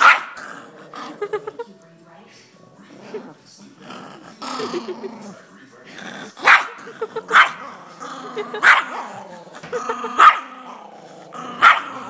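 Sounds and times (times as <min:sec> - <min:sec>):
small dog barking: 0:00.0 - 0:00.4, 0:06.4 - 0:07.6, 0:08.6 - 0:09.0, 0:10.2 - 0:10.5, 0:11.6 - 0:12.0
dog growling: 0:00.0 - 0:01.6, 0:02.8 - 0:12.0.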